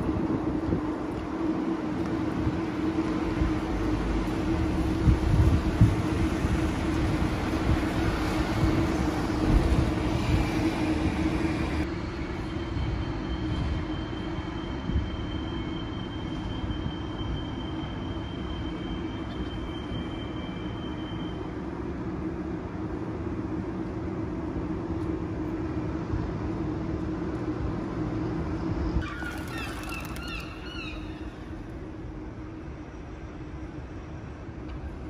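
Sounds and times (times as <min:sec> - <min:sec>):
low traffic rumble: 0:00.0 - 0:35.0.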